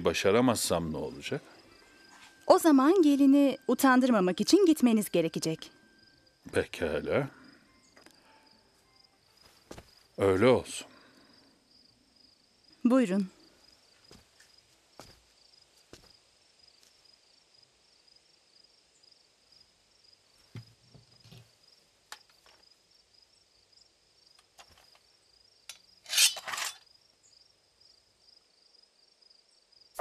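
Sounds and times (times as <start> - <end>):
crickets chirping: 0.0 - 30.0
sword drawn from scabbard: 26.0 - 26.8.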